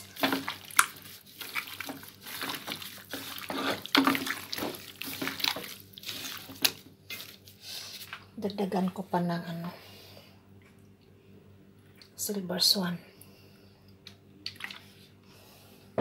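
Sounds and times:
wet squishing of kneaded meat: 0.0s - 9.0s, 14.4s - 15.1s.

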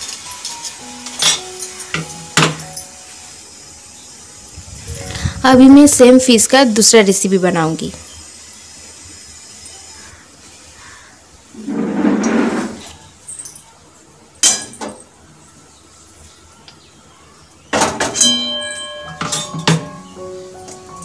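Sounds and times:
metal clinks: 12.9s - 13.8s, 18.2s - 20.0s.

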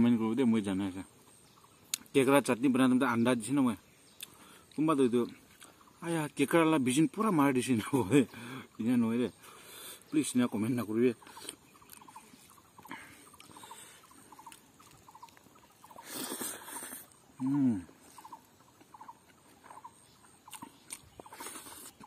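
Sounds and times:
small animal chirping: 10.1s - 22.0s.

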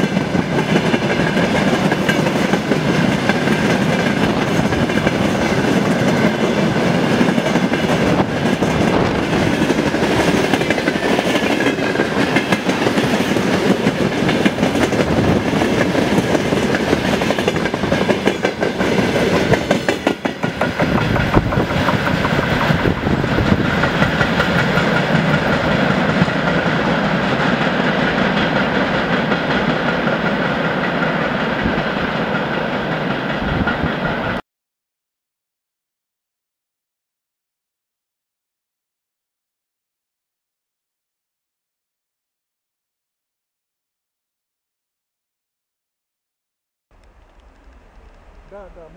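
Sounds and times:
train wagons rumbling past: 0.0s - 34.4s, 46.9s - 48.9s
wheels clacking over rail joints: 0.0s - 34.4s.

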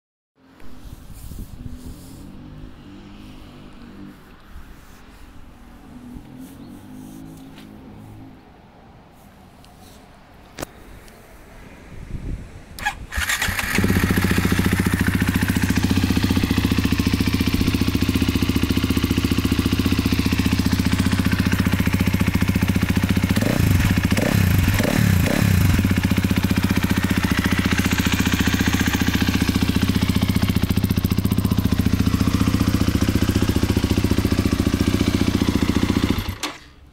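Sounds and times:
motorcycle engine starting and idling: 12.8s - 36.9s.

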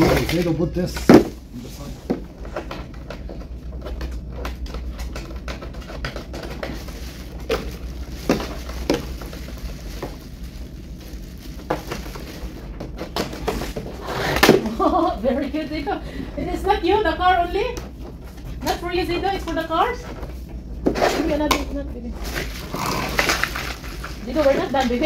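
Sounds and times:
plastic bag rustling: 6.2s - 15.2s, 22.1s - 25.0s.

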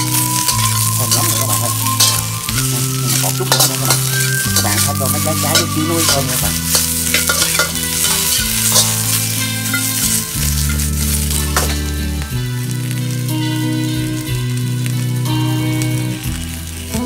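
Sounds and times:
spatula scraping a wok: 0.0s - 12.0s
vegetables sizzling in a wok: 0.0s - 17.0s.

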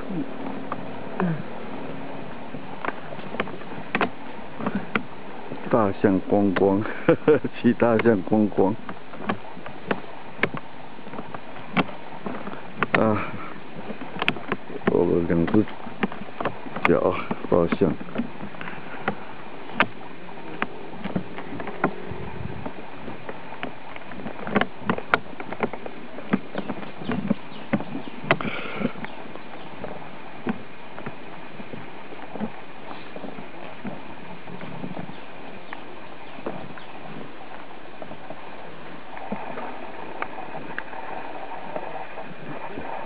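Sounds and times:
creaking riding seat and gear: 0.0s - 43.0s
steady rustling: 0.0s - 43.0s
light clicks and knocks: 2.5s - 38.2s
steady hiss: 27.2s - 43.0s.

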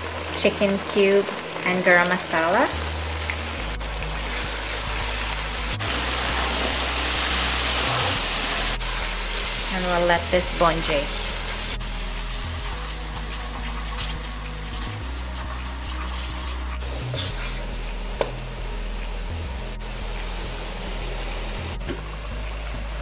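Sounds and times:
paste sizzling in oil: 0.0s - 21.8s
wooden spoon scraping a wok: 15.2s - 17.7s.

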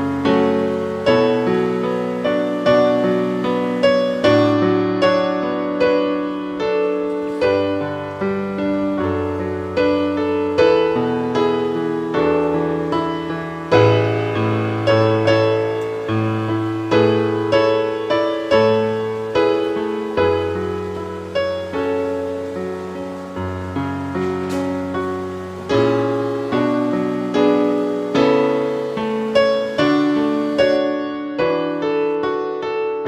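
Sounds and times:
slow piano music: 0.0s - 33.0s.

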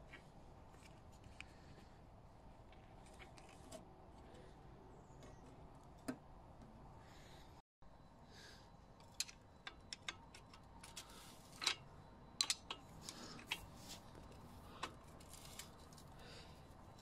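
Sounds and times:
metal spanner clicking: 9.0s - 13.7s.

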